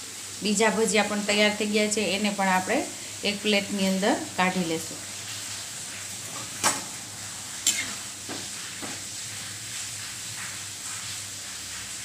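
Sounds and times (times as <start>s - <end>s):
fritters sizzling in oil: 0.0s - 12.0s
soft knocks: 8.3s - 9.0s.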